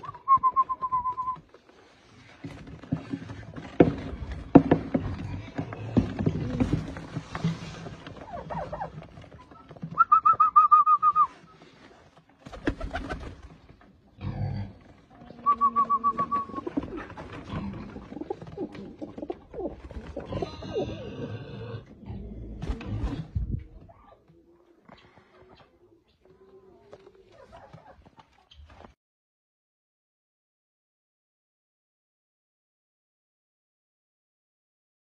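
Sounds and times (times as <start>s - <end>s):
pigeons cooing: 8.0s - 10.8s, 14.2s - 28.0s.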